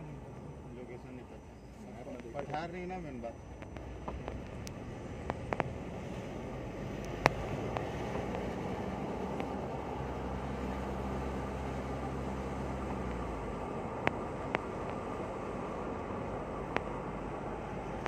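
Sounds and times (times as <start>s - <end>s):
low engine hum: 0.0s - 18.0s
tyre and road noise: 0.0s - 18.0s
sharp clicks: 3.6s - 5.8s.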